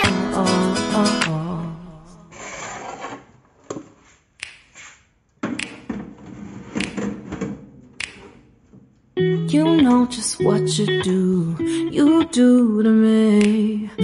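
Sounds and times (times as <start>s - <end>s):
sharp clicks or knocks: 5.4s - 6.1s, 6.7s - 8.4s.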